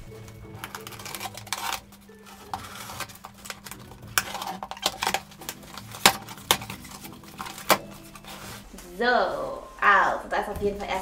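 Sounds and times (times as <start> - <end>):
knife slitting packing tape: 0.3 - 8.4.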